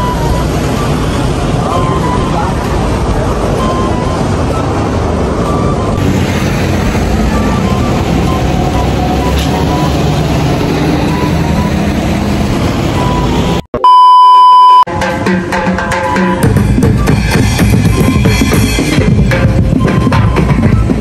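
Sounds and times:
road traffic rumble: 0.0s - 13.7s, 15.0s - 21.0s
loud electronic beep: 7.2s - 10.2s, 12.9s - 14.9s, 15.9s - 18.8s
drumming: 14.9s - 21.0s.

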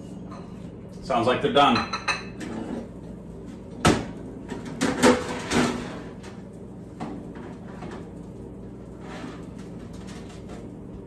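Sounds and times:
metal basket scraping: 8.9s - 10.5s.

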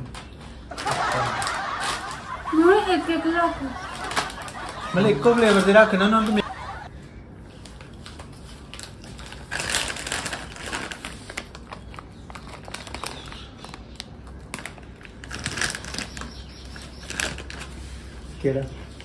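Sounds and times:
chip packet crinkling: 8.6s - 17.8s.

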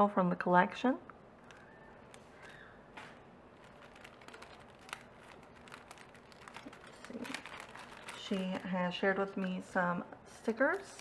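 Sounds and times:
small clicks of packaging: 1.4s - 8.7s
paper rustling: 1.4s - 9.6s, 10.5s - 11.0s.

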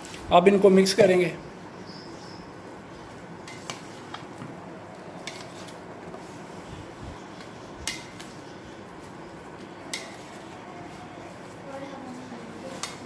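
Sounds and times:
plastic spoon stirring fruit: 2.9s - 13.0s.

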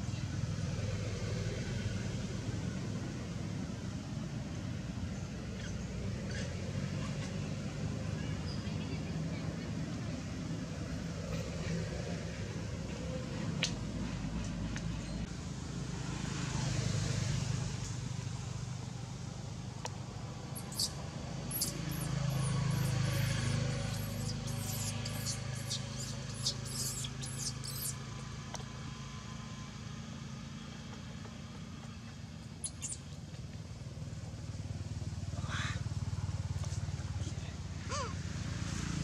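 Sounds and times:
road traffic engine hum: 0.0s - 39.0s
short high squeaks: 20.6s - 28.0s, 32.6s - 33.1s.

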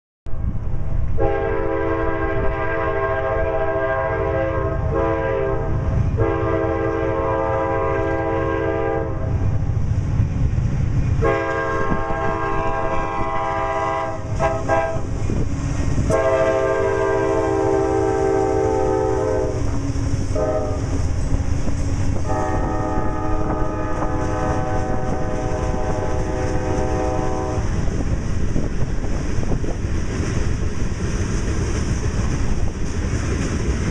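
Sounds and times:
passing train rumble: 0.3s - 33.9s
locomotive air horn blasts: 1.2s - 9.3s, 11.2s - 15.1s, 16.1s - 21.0s, 22.2s - 27.7s
train wheels clacking on rails: 9.4s - 33.9s.

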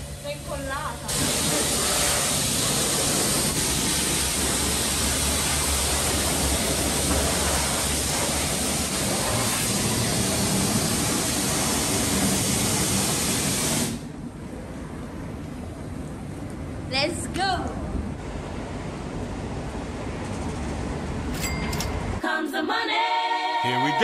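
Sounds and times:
pressure washer spraying water: 1.0s - 14.0s.

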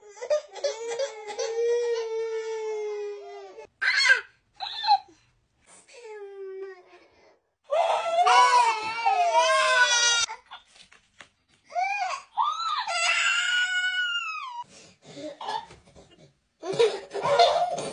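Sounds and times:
babies crying: 7.7s - 10.3s.

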